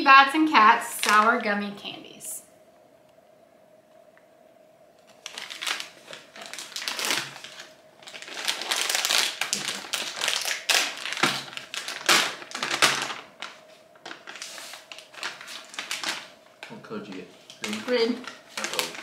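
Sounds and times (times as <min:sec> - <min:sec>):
candy bag crinkling: 0:00.9 - 0:01.4, 0:05.0 - 0:19.0.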